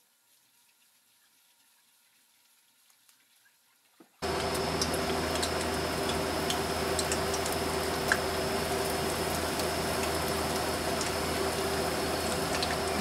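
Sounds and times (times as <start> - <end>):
food sizzling in hot oil: 4.2 - 13.0.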